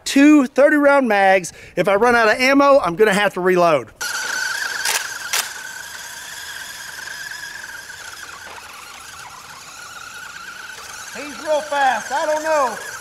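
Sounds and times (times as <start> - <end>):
short clicks: 4.0 - 6.6
rc car motor whining: 4.0 - 13.0.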